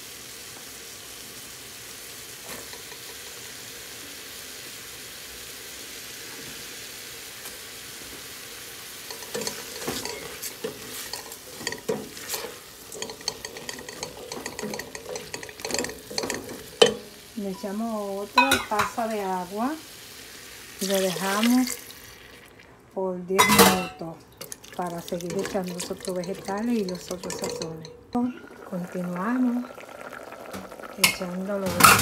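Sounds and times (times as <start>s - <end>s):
vegetables sizzling in a pot: 0.0s - 22.8s, 23.4s - 32.0s
spatula scraping a pot: 9.1s - 16.7s.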